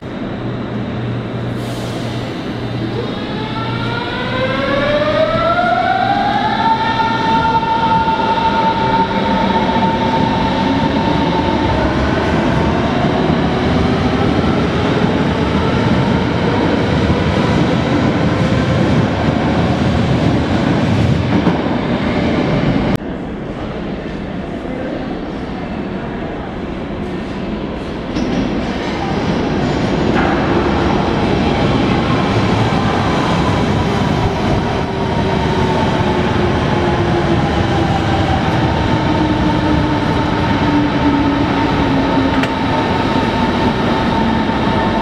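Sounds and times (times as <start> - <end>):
train wheels rumbling on rails: 26.4 - 45.0.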